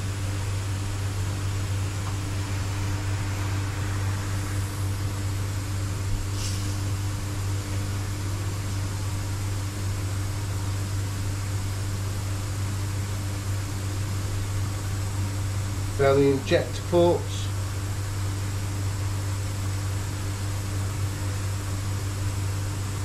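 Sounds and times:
even hiss: 0.0 - 9.4, 15.9 - 18.3
electric machine hum: 0.0 - 23.0
brief high hiss: 6.3 - 7.0.

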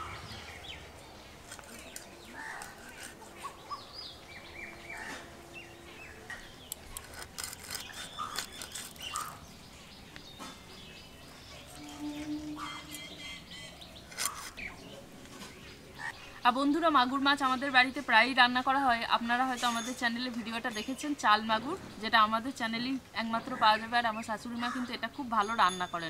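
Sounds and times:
small birds chirping: 0.0 - 17.8.

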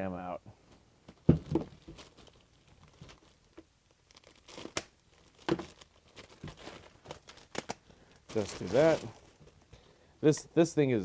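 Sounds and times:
plastic bag crinkling: 1.4 - 9.7.

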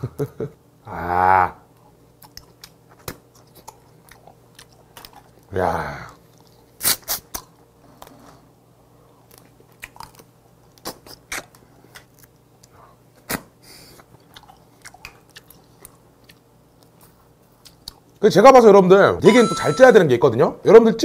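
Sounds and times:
chewing and sucking crab meat: 1.7 - 5.5, 6.1 - 18.2
crab shell cracking: 9.3 - 12.8.

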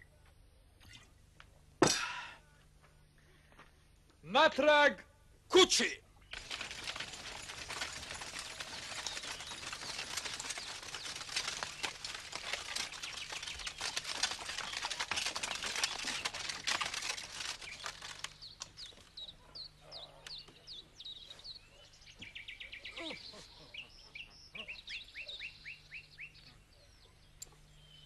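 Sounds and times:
birds chirping: 6.1 - 28.0
dense rustling and crackling: 6.2 - 19.2.

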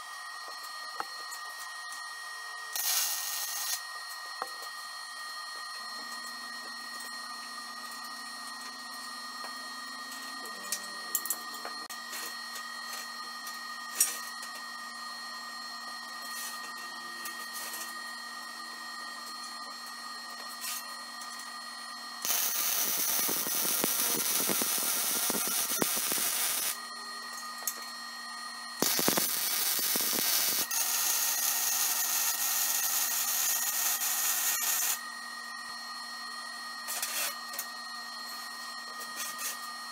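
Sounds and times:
steady shop hum: 0.0 - 39.9
welder arc crackling: 2.8 - 3.8, 22.2 - 26.8, 28.8 - 35.0.

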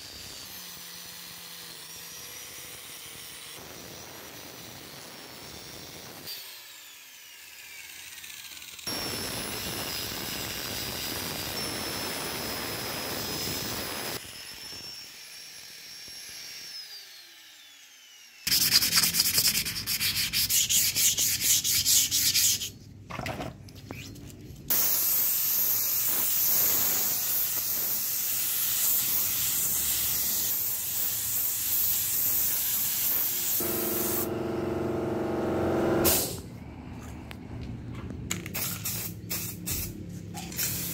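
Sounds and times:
spray paint hissing: 18.5 - 22.7, 24.7 - 34.4, 38.5 - 40.9
angle grinder whining: 33.4 - 36.6.

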